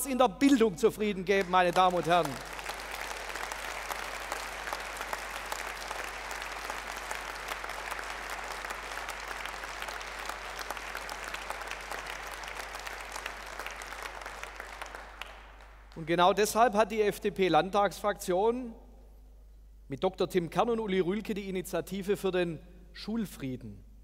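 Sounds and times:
audience applause: 0:01.5 - 0:16.0.

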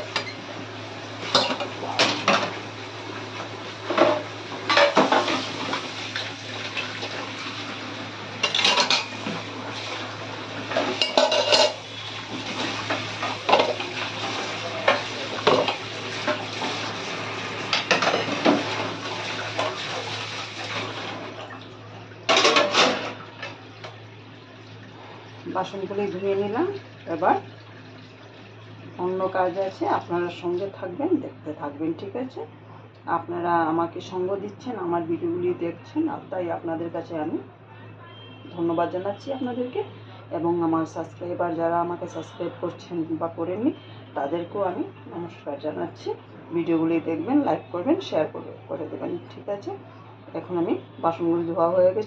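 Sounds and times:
running tap water: 0:00.0 - 0:30.7
metal utensils and bowls clattering: 0:01.2 - 0:02.6, 0:03.9 - 0:05.9, 0:08.4 - 0:09.4, 0:10.6 - 0:16.8, 0:17.7 - 0:20.9, 0:22.3 - 0:23.6.

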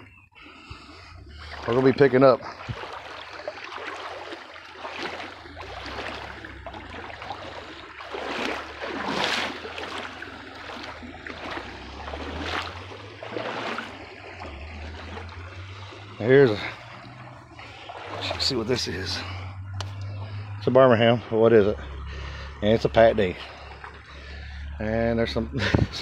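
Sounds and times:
wading splashes: 0:00.0 - 0:26.0
water rushing over rocks: 0:00.9 - 0:20.6.

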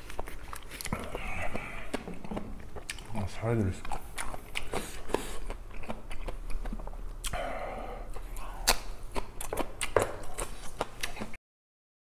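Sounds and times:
crunchy chewing: 0:00.0 - 0:11.4
wet mouth clicks: 0:03.8 - 0:11.4.

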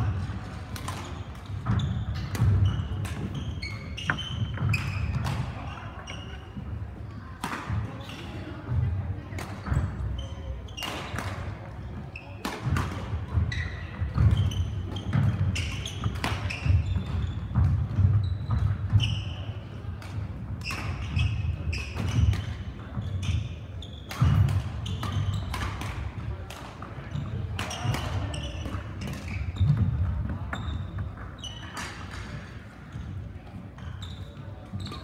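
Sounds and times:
racket hitting shuttlecock: 0:00.0 - 0:05.6, 0:07.4 - 0:07.8, 0:10.8 - 0:11.5, 0:12.4 - 0:19.2, 0:24.1 - 0:26.9, 0:27.6 - 0:30.6
shoe squeaks: 0:01.0 - 0:06.6, 0:12.1 - 0:12.4, 0:13.4 - 0:19.7, 0:20.6 - 0:25.6, 0:27.1 - 0:29.8, 0:30.5 - 0:32.6, 0:33.8 - 0:35.0.

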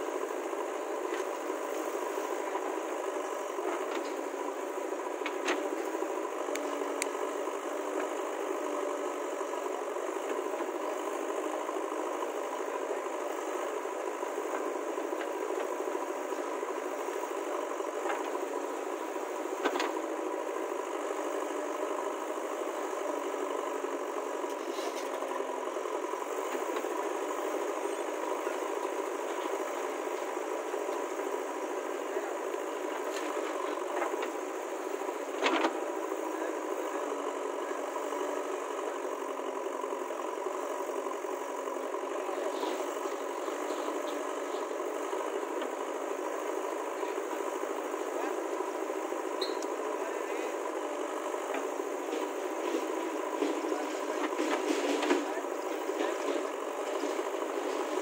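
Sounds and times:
diesel engine running with rattle: 0:00.0 - 0:58.0.

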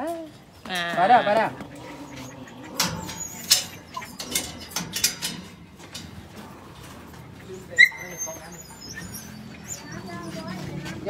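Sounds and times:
metal dog cage clanking: 0:00.8 - 0:11.0.

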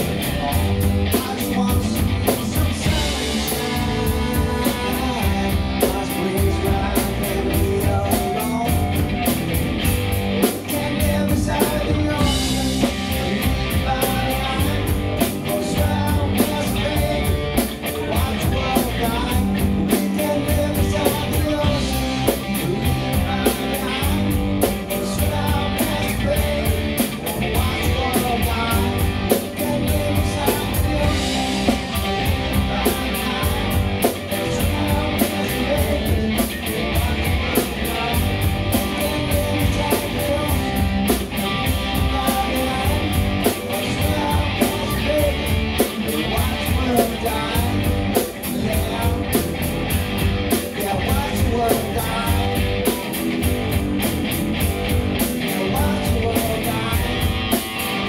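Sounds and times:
drum kit beat: 0:00.0 - 0:58.0
electric guitar: 0:00.0 - 0:58.0
live rock band playing: 0:00.0 - 0:58.0.

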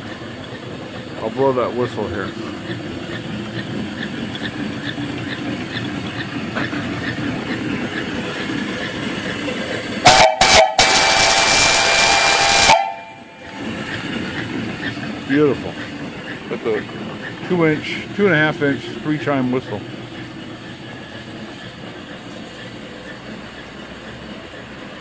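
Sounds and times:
steam engine running: 0:00.0 - 0:25.0
steam whistle blowing: 0:10.0 - 0:13.4.

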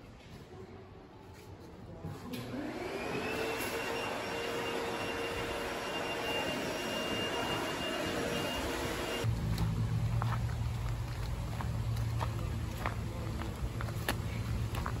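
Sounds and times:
machine whine spinning up: 0:02.6 - 0:09.3.

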